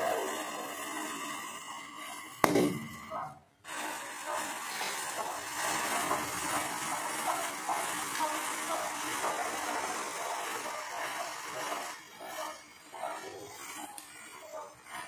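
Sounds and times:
match heads hissing and crackling: 3.7 - 15.0.

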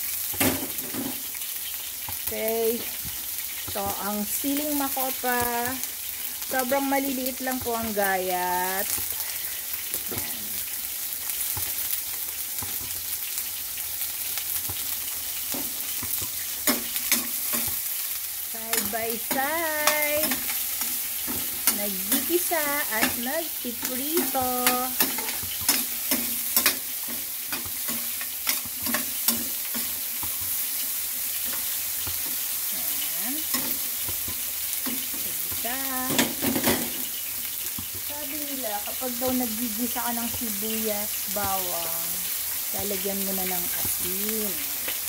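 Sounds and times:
vegetables sizzling in oil: 0.0 - 45.0
metal spoon scraping a pan: 18.7 - 38.0
spoon clanking against pan: 22.9 - 30.6.

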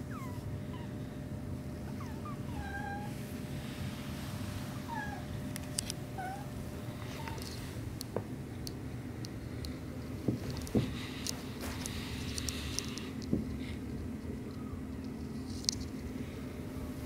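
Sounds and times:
kittens mewing: 1.8 - 3.2, 4.7 - 5.4, 6.1 - 7.7.

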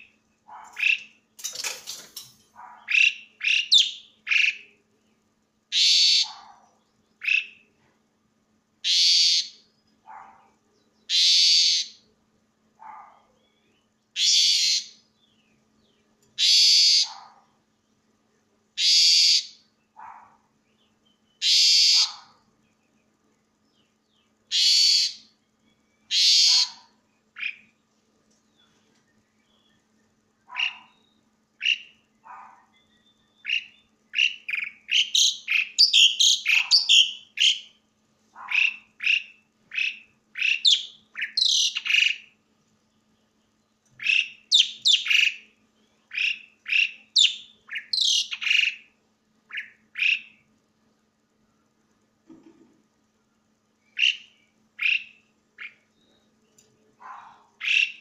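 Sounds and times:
starling singing: 0.7 - 1.6, 2.7 - 4.7, 30.5 - 37.8, 38.4 - 42.3, 44.0 - 45.5, 46.1 - 48.9, 49.5 - 50.4, 53.9 - 55.9, 57.0 - 58.0.

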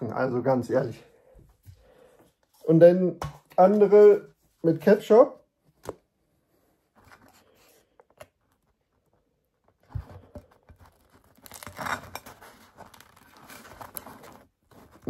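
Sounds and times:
bread crust crackling and crunching: 10.4 - 15.0.

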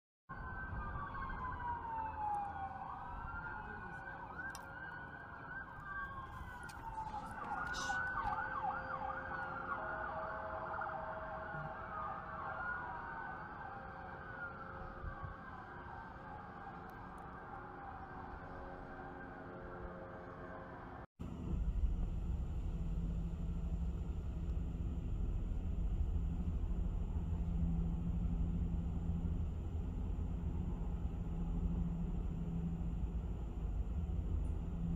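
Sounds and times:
emergency sirens wailing: 0.3 - 21.1, 22.6 - 34.9
low rumble of city traffic: 0.3 - 34.9
constant hum: 2.2 - 34.9
steady low rumble: 21.2 - 34.9.

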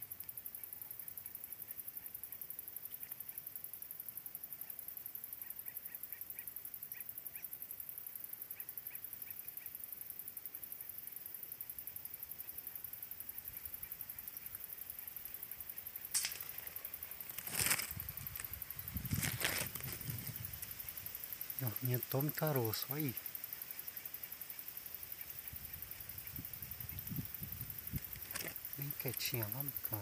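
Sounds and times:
faint bird chirps: 0.0 - 19.3
high-pitched insect trill: 0.0 - 30.0.

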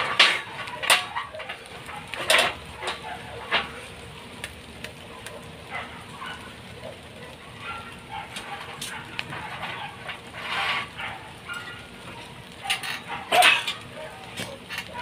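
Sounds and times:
clinks on steel bars: 0.0 - 3.7, 12.6 - 13.8.

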